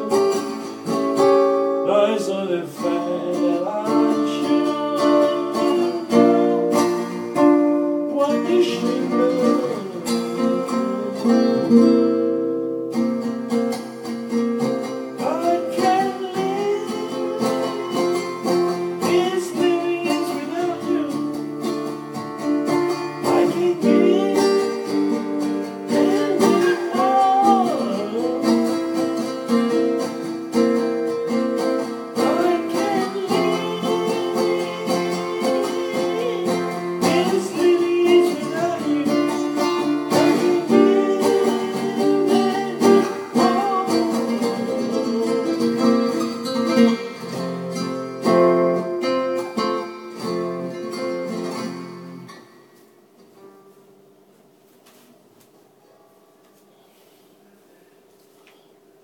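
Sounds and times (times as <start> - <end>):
acoustic guitar strumming: 0.0 - 54.1
person singing: 1.8 - 12.6, 14.8 - 49.8.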